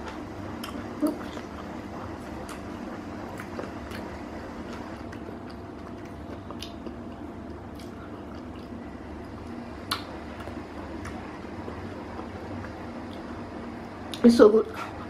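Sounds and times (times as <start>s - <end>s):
low room hum: 0.0s - 15.0s
wet mouth clicks eating: 5.1s - 8.8s, 9.9s - 11.2s.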